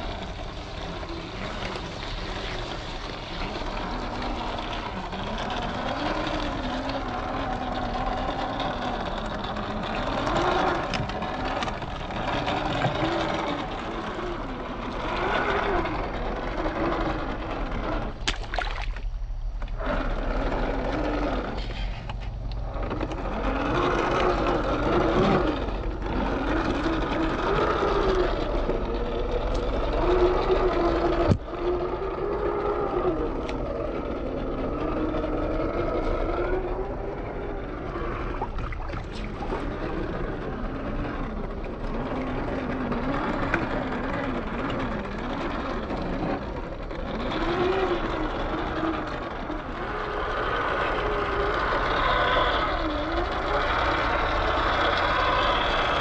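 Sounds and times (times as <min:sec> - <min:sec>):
electric motor whining: 0:00.0 - 0:56.0
sloshing through muddy water: 0:09.7 - 0:19.2, 0:37.6 - 0:44.1.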